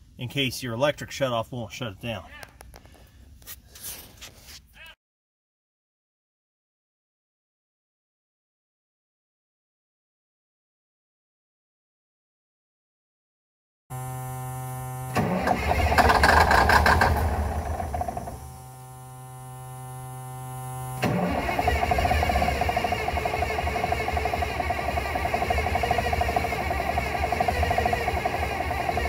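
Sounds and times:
starter motor whine: 13.9 - 29.0
diesel engine running: 14.0 - 29.0.

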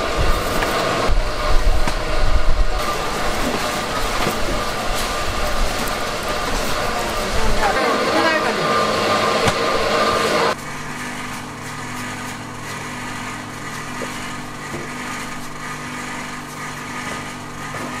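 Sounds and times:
louder busier engine sound: 0.0 - 18.0
small engine humming: 0.0 - 18.0.

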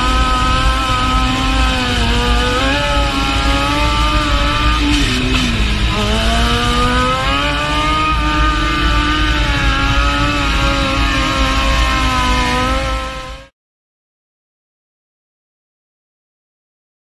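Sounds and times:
motorcycle engine revving: 0.0 - 13.5.

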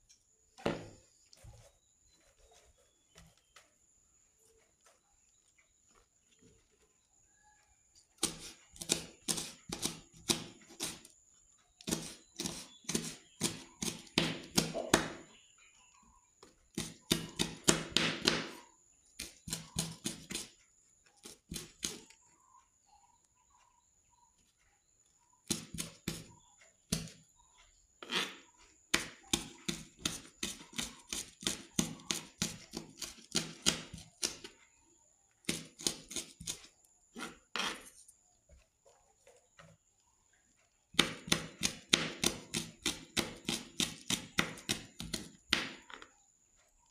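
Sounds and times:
knife chopping on plastic board: 8.2 - 11.1, 11.8 - 15.4, 16.7 - 20.5, 21.2 - 22.1, 25.4 - 27.2, 28.0 - 34.6, 35.4 - 37.9, 40.9 - 46.1.

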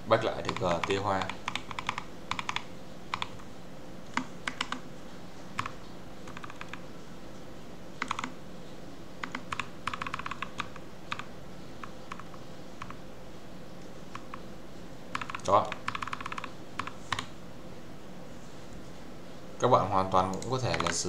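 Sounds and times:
mechanical keyboard clicks: 0.4 - 3.4, 4.2 - 4.8, 6.3 - 6.8, 8.0 - 8.3, 9.2 - 11.3, 15.1 - 17.3, 20.3 - 21.0.

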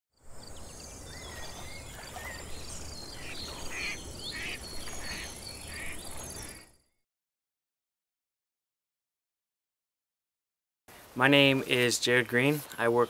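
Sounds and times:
birds chirping and whistling: 0.3 - 6.8
short harsh bird calls: 3.2 - 6.7.

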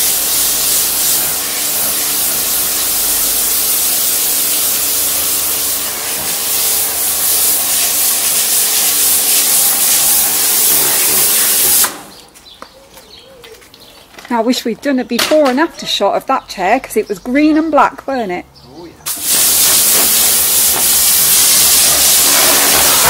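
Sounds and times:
pressure washer motor humming: 0.0 - 12.1, 19.1 - 23.0
pressure washer water jet hissing: 0.0 - 12.2, 19.1 - 23.0.

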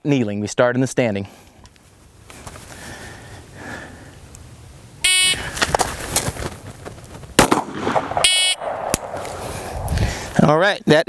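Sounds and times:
pistol shot: 7.4 - 9.4
shot timer beep: 8.2 - 8.6.

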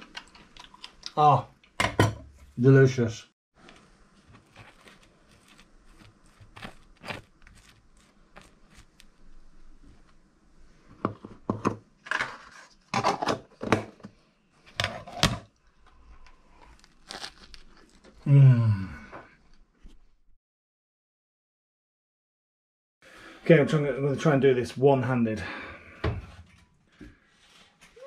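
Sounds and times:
knife scraping crusty bread: 4.3 - 9.1.

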